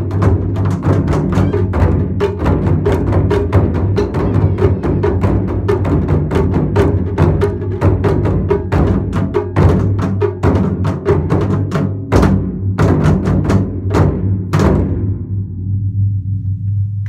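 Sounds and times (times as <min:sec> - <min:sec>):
taiko drums strikes: 0:00.0 - 0:15.9.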